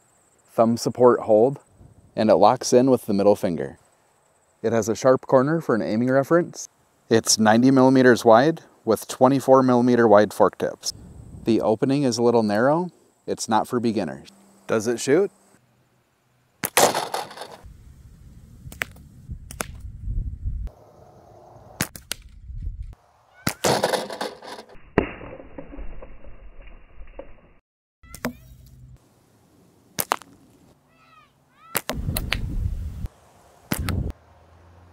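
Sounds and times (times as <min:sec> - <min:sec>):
wind gusts on microphone: 0:01.7 - 0:02.2, 0:10.9 - 0:11.8, 0:17.6 - 0:23.0, 0:31.9 - 0:33.1, 0:33.7 - 0:34.1
slingshot band snaps: 0:18.7 - 0:19.9, 0:30.0 - 0:30.4, 0:31.7 - 0:32.5, 0:33.7 - 0:34.0.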